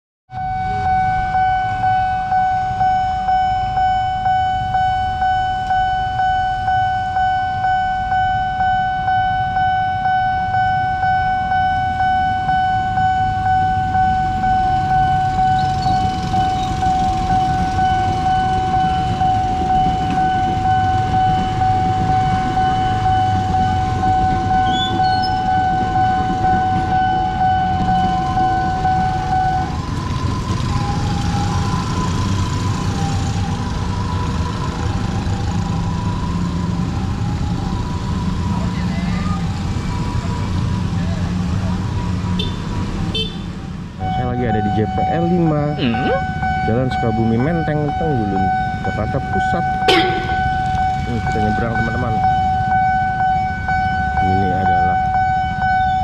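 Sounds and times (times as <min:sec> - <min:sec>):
level crossing warning bell: 0:00.4 - 0:32.3, 0:44.0 - 0:56.0
electric trains rumbling past: 0:13.6 - 0:38.3, 0:48.4 - 0:55.8.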